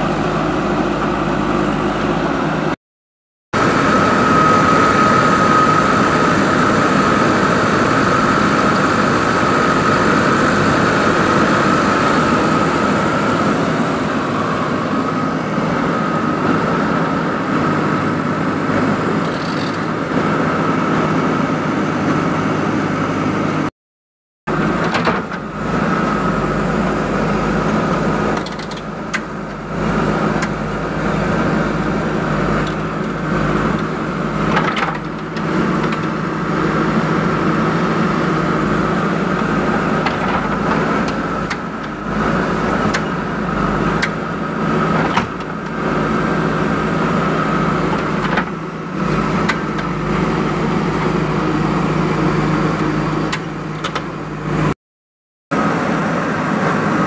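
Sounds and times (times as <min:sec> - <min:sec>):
diesel engine running: 0:00.0 - 0:02.8, 0:03.6 - 0:23.7, 0:24.5 - 0:54.8, 0:55.5 - 0:57.0
steady high whine: 0:03.6 - 0:18.7.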